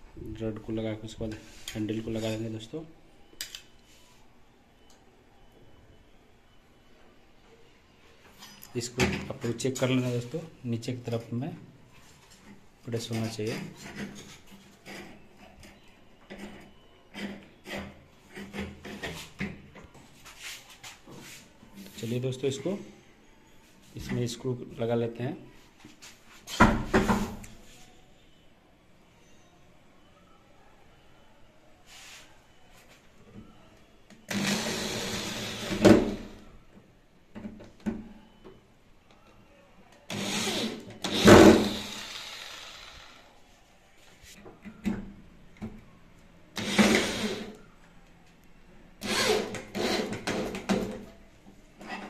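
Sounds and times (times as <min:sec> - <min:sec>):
electric drill driving screws: 0:34.3 - 0:36.3, 0:40.1 - 0:43.3, 0:46.6 - 0:47.6, 0:49.0 - 0:50.4.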